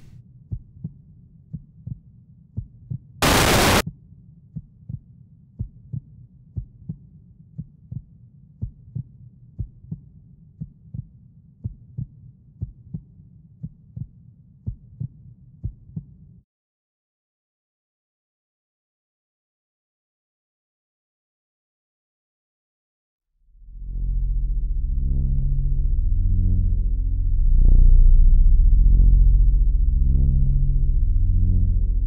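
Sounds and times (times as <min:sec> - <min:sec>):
loud burst of static noise: 0:03.2 - 0:03.8
low drone: 0:23.6 - 0:32.0.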